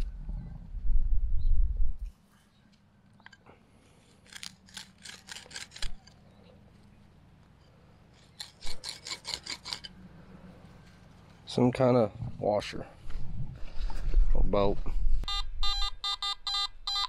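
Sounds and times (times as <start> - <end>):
digging scrapes in soil: 8.1 - 10.0.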